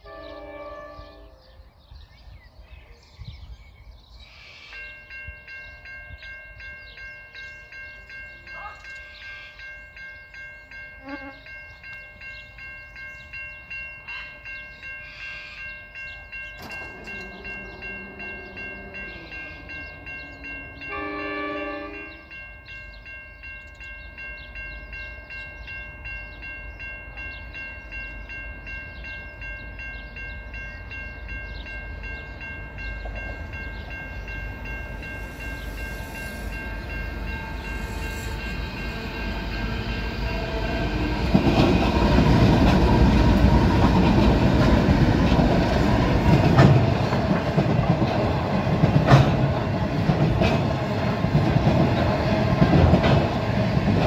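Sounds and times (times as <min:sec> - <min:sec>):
train horn: 0:00.0 - 0:01.6, 0:11.0 - 0:11.6, 0:16.8 - 0:22.4
level crossing bells ringing: 0:04.7 - 0:54.0
freight train rumbling: 0:04.8 - 0:54.0.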